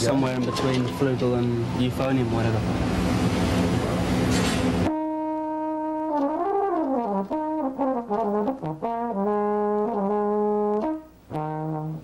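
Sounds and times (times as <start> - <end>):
solo horn playing: 4.9 - 12.0.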